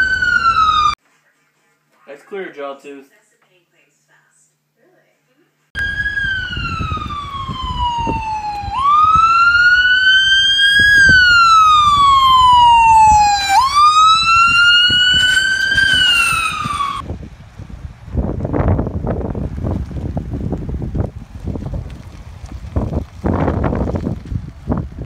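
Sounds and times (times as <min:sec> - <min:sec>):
electronic siren wailing: 0:00.0 - 0:01.0, 0:05.8 - 0:17.0
wind rumble on microphone: 0:05.8 - 0:25.0.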